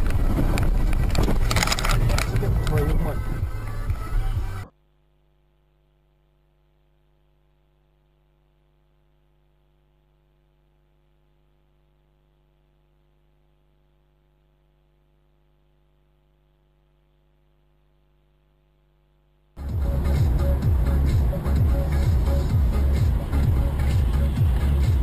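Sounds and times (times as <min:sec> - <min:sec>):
faint electrical hum: 0:04.7 - 0:19.6.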